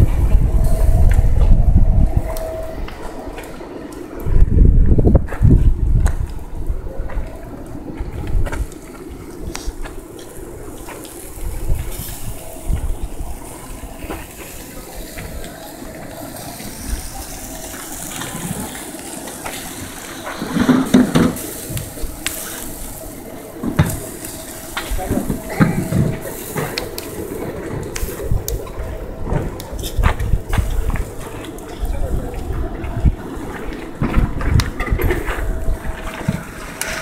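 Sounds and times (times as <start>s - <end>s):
wind rumbling on microphone: 0.0s - 37.0s
liquid sizzling on a grill: 8.5s - 33.5s.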